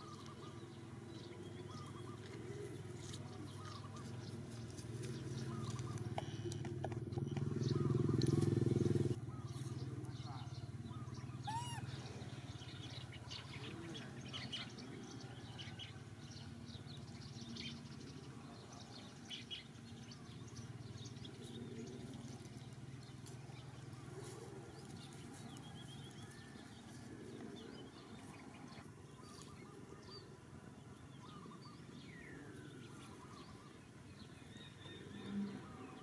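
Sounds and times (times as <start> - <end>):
birds chirping: 0.0 - 36.0
steady low hum: 0.0 - 36.0.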